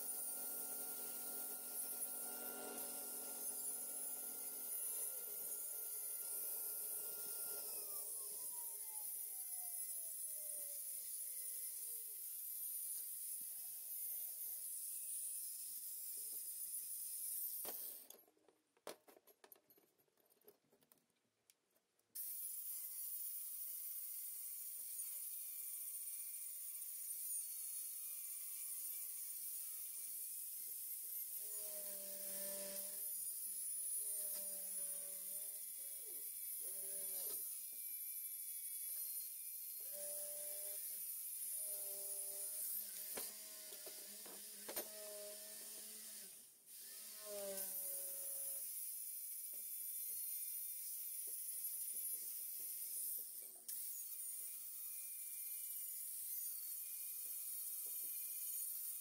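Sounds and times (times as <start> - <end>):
power tool motor winding down: 0.0 - 10.7, 31.4 - 33.1, 34.0 - 37.7, 39.8 - 48.7
small motor whining: 0.0 - 16.3, 22.2 - 59.0.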